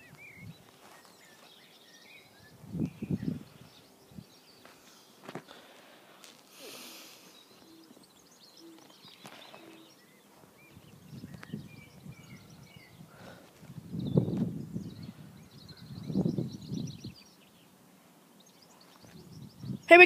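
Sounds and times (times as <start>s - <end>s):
faint birdsong: 0.0s - 20.0s
short hiss: 6.3s - 7.4s.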